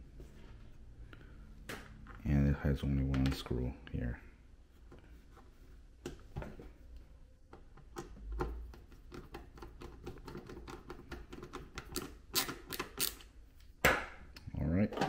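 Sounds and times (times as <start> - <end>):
screwdriver clicking and scraping: 9.0 - 13.3.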